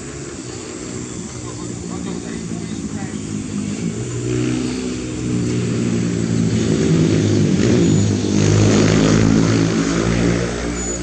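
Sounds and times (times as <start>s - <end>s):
diesel engine running hard: 0.0s - 11.0s.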